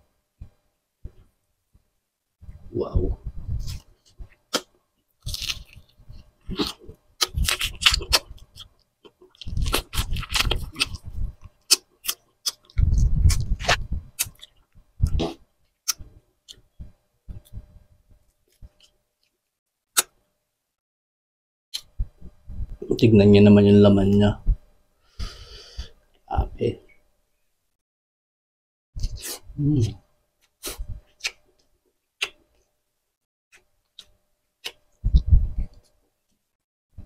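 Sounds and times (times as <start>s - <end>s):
chewing and crunching: 4.4s - 16.6s
mouth clicks and smacks: 30.6s - 31.4s, 32.2s - 32.5s.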